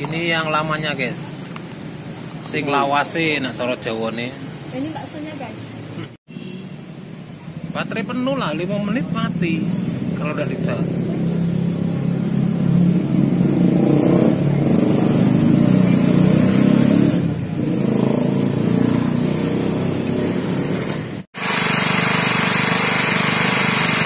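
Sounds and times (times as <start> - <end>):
generator engine running: 20.7 - 24.0.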